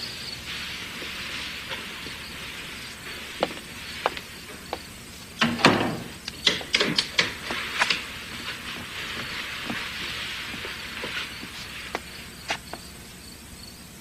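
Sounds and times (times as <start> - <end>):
footsteps in a hallway: 0.0 - 13.3
steady hiss: 0.0 - 14.0
sharp clicks and knocks: 3.4 - 12.9.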